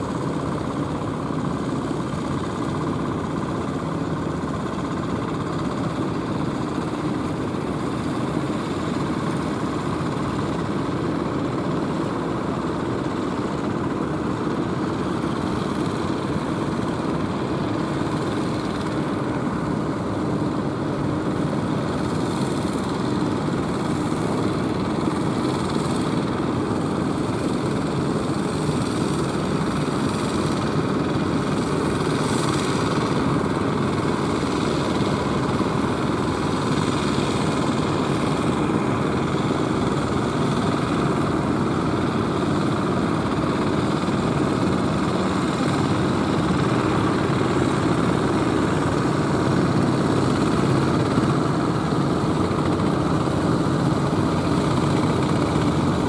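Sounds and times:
boat engines running: 29.0 - 56.0.

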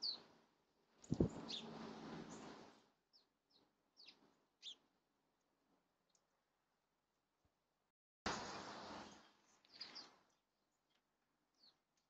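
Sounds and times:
songbird chirping: 0.0 - 0.3, 1.0 - 6.4, 8.4 - 12.0.

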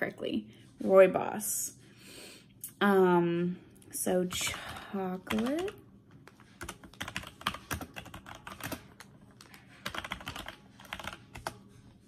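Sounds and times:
keyboard typing clicks: 5.3 - 11.6.

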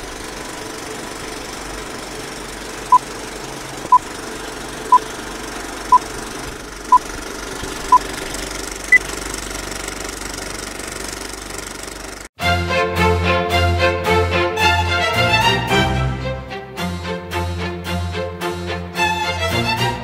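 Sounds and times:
film projector clatter and hiss: 0.0 - 12.3.

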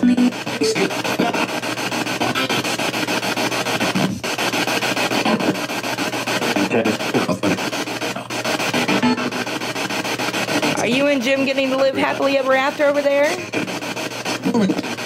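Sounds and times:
fragments of broadcast voices: 0.0 - 15.0
radio static hiss: 0.0 - 15.0.

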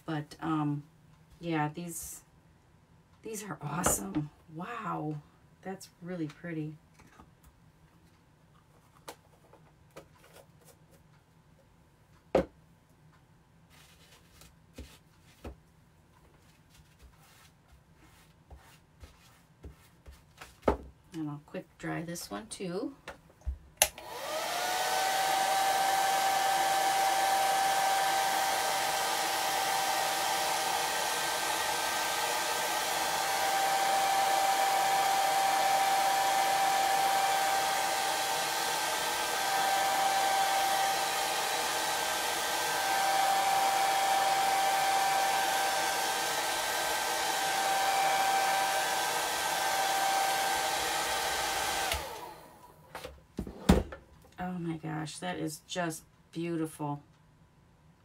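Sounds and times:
hair dryer running: 3.8 - 4.1, 23.8 - 52.8
hair dryer switch click: 23.8 - 24.3, 51.8 - 52.3.

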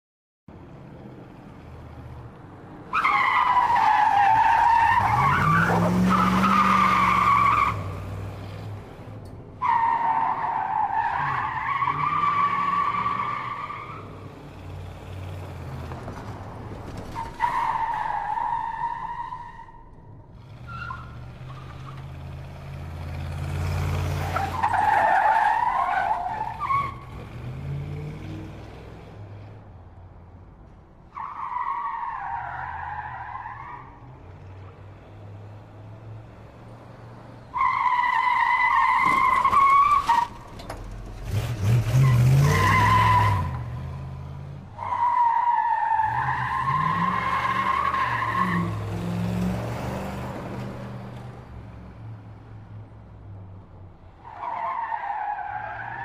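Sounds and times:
car engine revving: 40.3 - 44.8.

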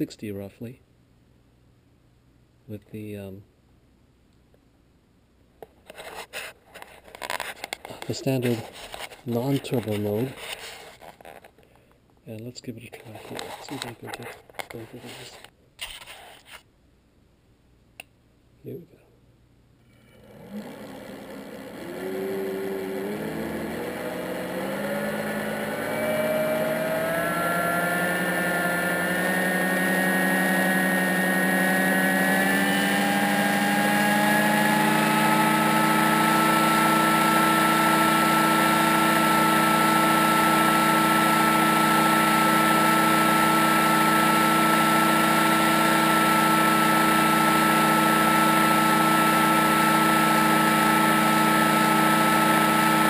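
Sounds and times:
electric hub motor whine: 20.0 - 53.0.

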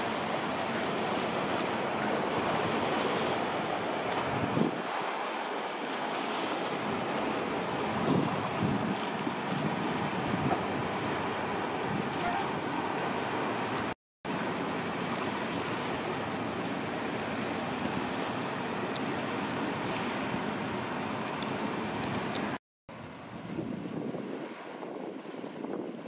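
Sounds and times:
waves washing: 0.0 - 26.0
wind rushing over microphone: 4.2 - 5.0, 7.8 - 11.0, 22.1 - 26.0.

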